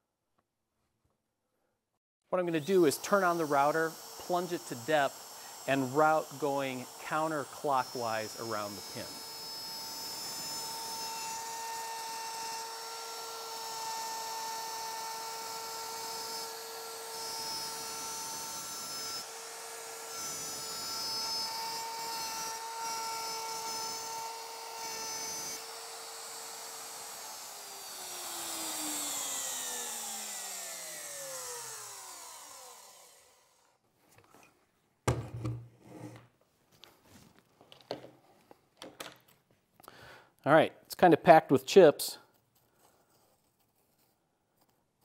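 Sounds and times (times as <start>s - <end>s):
router whining: 2.6s - 34.5s.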